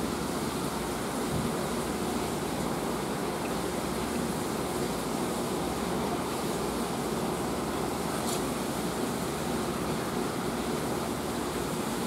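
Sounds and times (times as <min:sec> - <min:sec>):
aquarium filter water rushing: 0:00.0 - 0:12.0.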